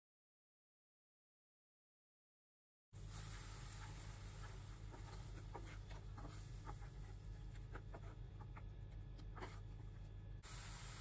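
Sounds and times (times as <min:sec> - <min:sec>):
steady low hum: 0:03.0 - 0:11.0
wooden spatula scraping pan: 0:03.8 - 0:08.6.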